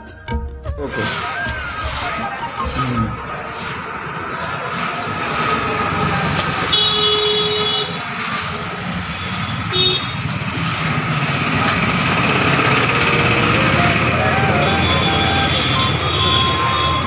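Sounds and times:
street traffic: 0.0s - 17.0s
vehicle horn tooting: 6.3s - 8.2s, 9.4s - 10.3s, 13.9s - 17.0s.

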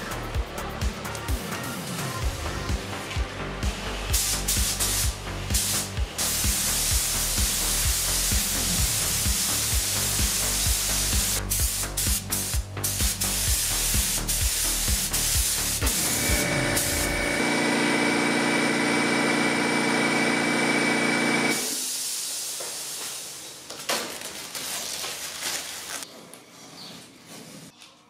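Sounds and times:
paint spray gun hissing: 3.9s - 17.4s, 21.5s - 23.5s.

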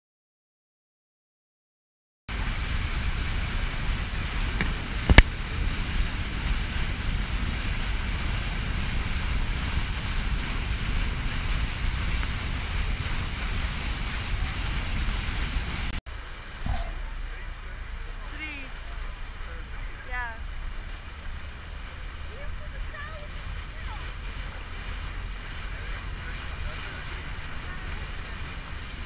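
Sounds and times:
wind rushing on microphone: 2.3s - 16.0s
boat wake churning: 2.3s - 29.0s
low rumble: 2.3s - 29.0s.

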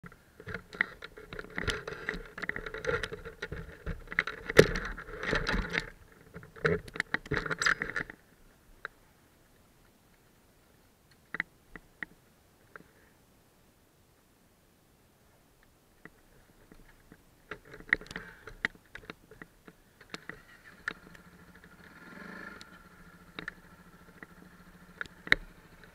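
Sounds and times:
camera mount rattling and knocking: 0.4s - 8.2s
faint clicks: 15.6s - 25.9s.

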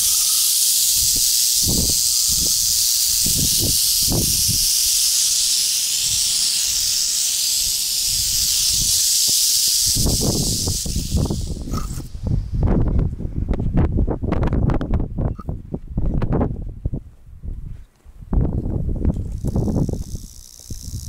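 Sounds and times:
rattlesnakes rattling: 0.0s - 12.6s, 19.1s - 21.0s.

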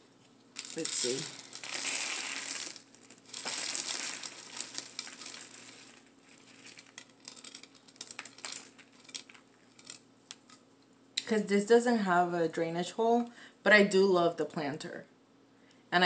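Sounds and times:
rustling leaves and soil: 0.5s - 10.5s.

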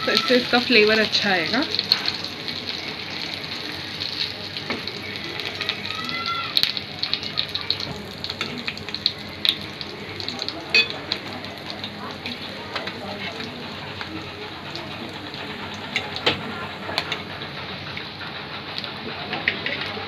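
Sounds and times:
fish frying in hot oil: 0.0s - 18.1s.

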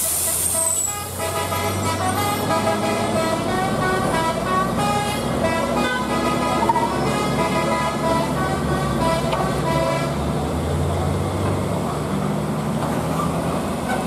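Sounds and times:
traffic engine hum: 0.0s - 14.0s
vehicle horns tooting: 0.2s - 10.2s.

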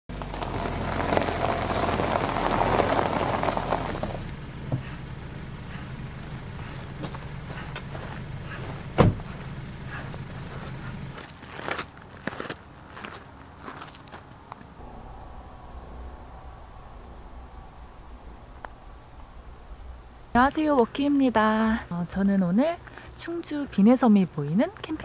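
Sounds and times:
low hum: 0.2s - 11.5s, 14.3s - 24.9s
footsteps crunching on gravel: 5.7s - 14.7s
car door shutting: 8.7s - 9.4s
rushing noise: 14.6s - 21.9s.

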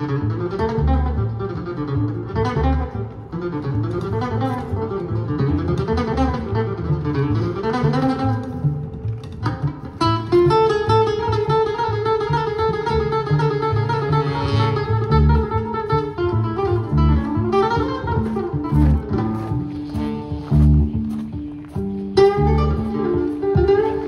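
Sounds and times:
acoustic guitar: 0.0s - 24.0s
plucked upright bass: 0.0s - 24.0s
saxophone: 13.7s - 16.6s, 17.4s - 21.2s.

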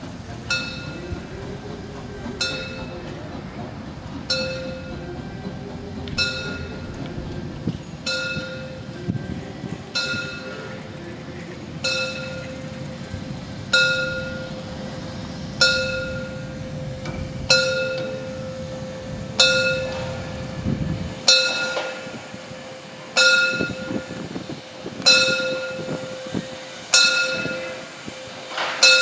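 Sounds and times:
locomotive bell ringing: 0.0s - 29.0s
low rumble: 0.2s - 21.3s.

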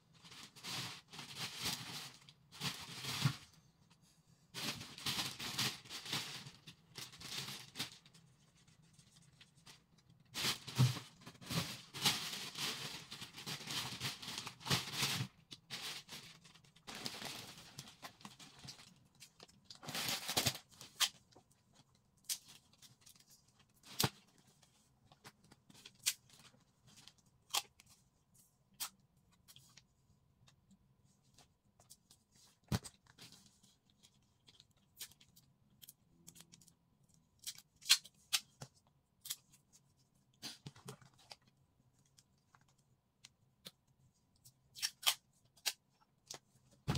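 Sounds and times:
plastic bags rustling and crinkling: 0.1s - 3.6s, 4.5s - 27.8s.

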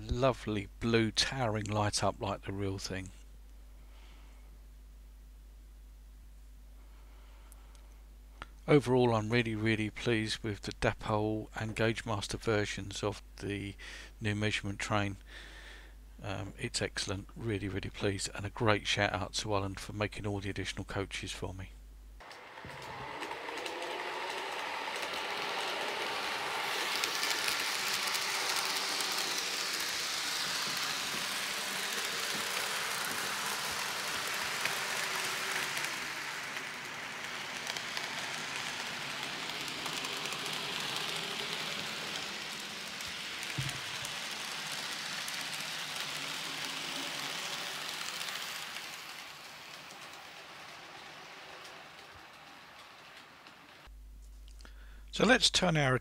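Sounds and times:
click: 7.5s - 8.6s
model train whirring: 22.2s - 53.9s.

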